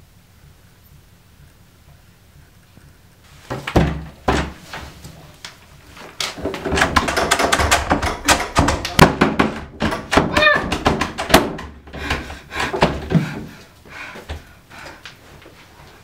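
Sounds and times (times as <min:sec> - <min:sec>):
heavy thumps: 0:03.3 - 0:15.1
fast irregular clatter of knocks: 0:03.5 - 0:05.0, 0:06.1 - 0:13.6.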